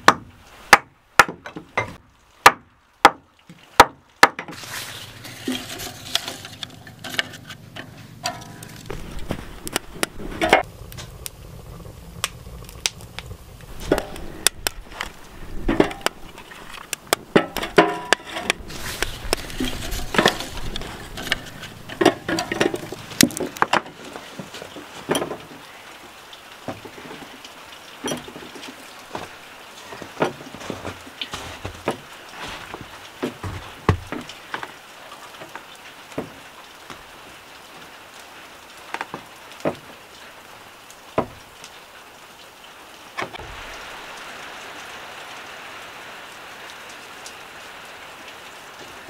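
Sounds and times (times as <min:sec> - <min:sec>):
logs knocking on steel brazier: 0:00.0 - 0:03.2, 0:03.8 - 0:11.3, 0:12.3 - 0:25.5, 0:28.1 - 0:34.7, 0:41.2 - 0:41.5
kindling fire crackling: 0:04.5 - 0:49.0.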